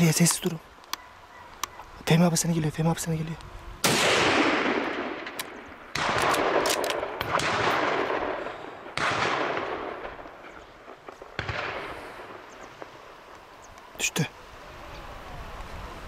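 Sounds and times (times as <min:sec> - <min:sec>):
gunshots with rolling echo: 0:03.8 - 0:13.0.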